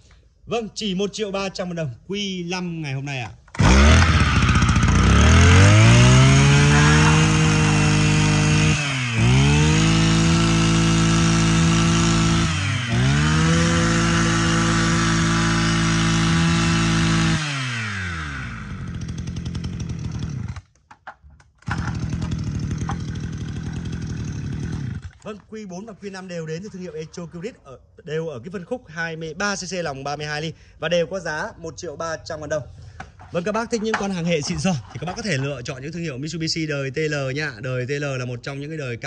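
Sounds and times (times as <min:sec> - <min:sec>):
brush cutter engine revving: 0:03.5 - 0:20.7, 0:21.6 - 0:25.3.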